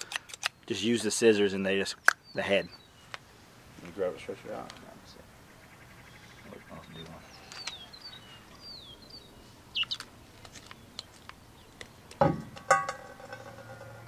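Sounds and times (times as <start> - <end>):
small birds chirping: 0.0 - 12.2
heavy thump: 12.2 - 14.0.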